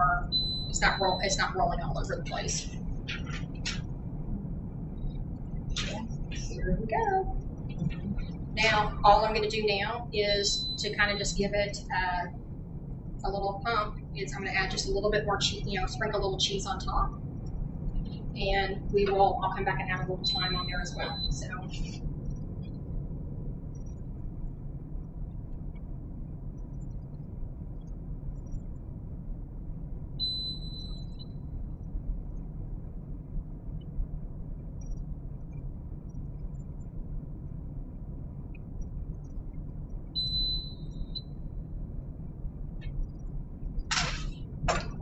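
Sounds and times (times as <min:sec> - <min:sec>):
low room hum: 0:00.0 - 0:45.0
short electronic beep: 0:00.3 - 0:01.3, 0:10.3 - 0:11.2, 0:20.2 - 0:21.9, 0:30.2 - 0:31.2, 0:40.2 - 0:41.2.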